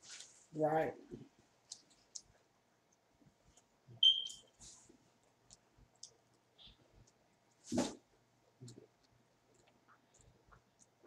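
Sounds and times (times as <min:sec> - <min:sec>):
short high beep: 0:04.0 - 0:04.4.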